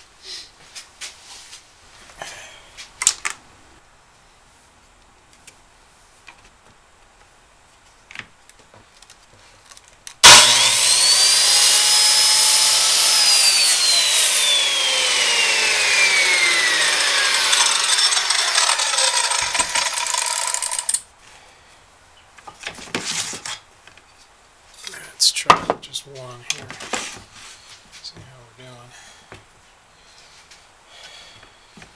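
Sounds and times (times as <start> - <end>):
circular saw cutting wood: 10.2 - 21.0.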